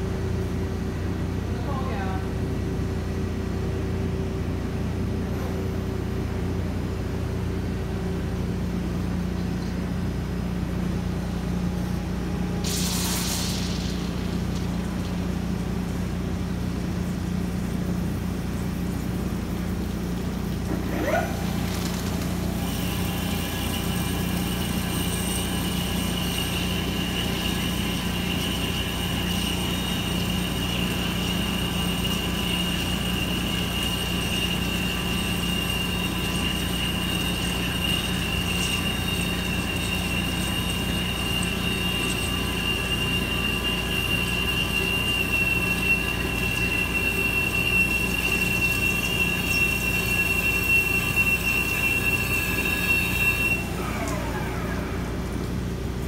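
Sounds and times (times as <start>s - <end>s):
low machine hum: 0.0s - 56.0s
high-pitched drilling squeal: 20.7s - 55.3s.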